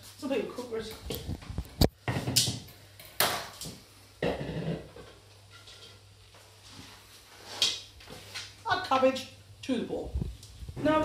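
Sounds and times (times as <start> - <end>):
kitchen knocks and clatters: 0.9 - 6.1.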